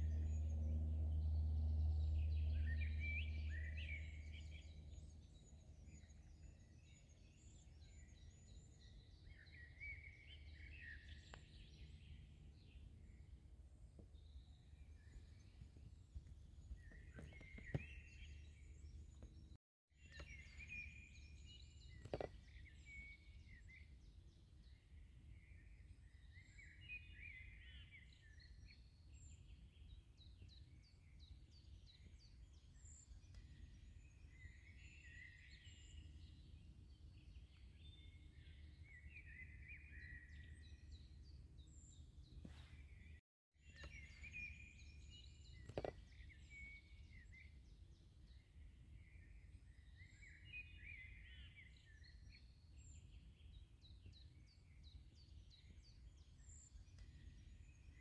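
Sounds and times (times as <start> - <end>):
low steady hum: 0.0 - 6.4
small birds chirping: 0.0 - 58.0.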